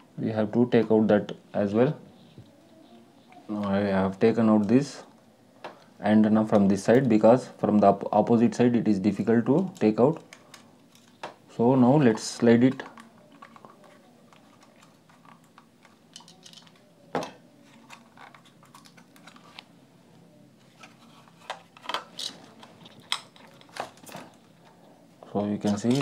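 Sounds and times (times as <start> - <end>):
plastic parts clicking and scraping: 9.6 - 11.4, 12.6 - 16.9, 17.6 - 19.7, 20.6 - 24.8, 25.6 - 26.0.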